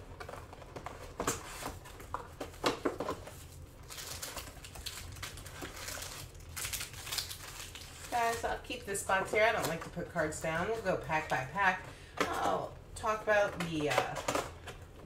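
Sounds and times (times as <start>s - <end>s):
rustling and crinkling of foil packs: 0.0s - 11.2s.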